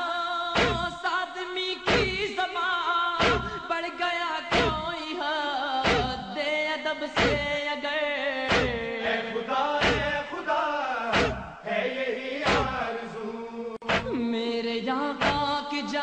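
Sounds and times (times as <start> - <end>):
person chanting: 0.0 - 16.0
deep regular thump: 0.6 - 0.9, 1.9 - 2.3, 3.2 - 3.6, 4.5 - 5.0, 5.9 - 6.3, 7.2 - 7.6, 8.5 - 8.9, 9.8 - 10.2, 11.1 - 11.6, 12.5 - 12.8, 13.8 - 14.2, 15.2 - 15.6.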